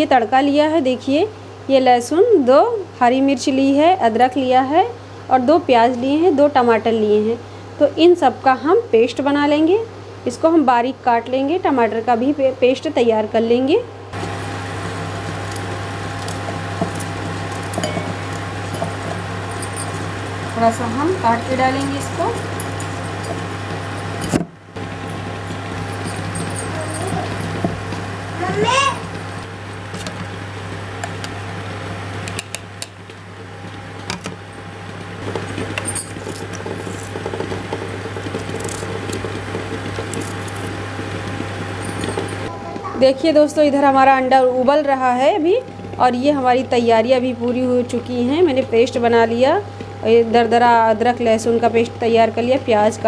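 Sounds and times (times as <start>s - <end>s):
electrical hum: 0.0s - 53.0s.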